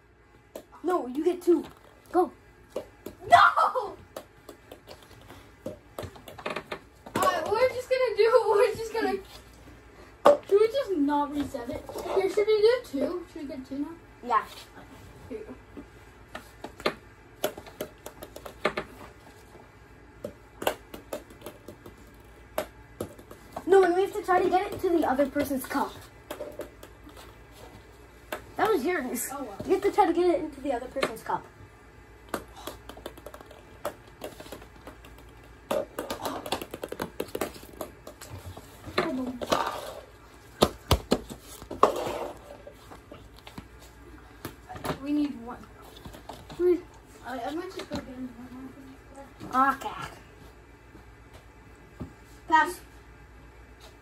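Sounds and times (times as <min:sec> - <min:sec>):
ping-pong balls bouncing on floor: 0:02.7 - 0:03.4, 0:04.0 - 0:07.7, 0:10.2 - 0:10.7, 0:16.6 - 0:19.1, 0:20.2 - 0:27.4, 0:32.2 - 0:42.2.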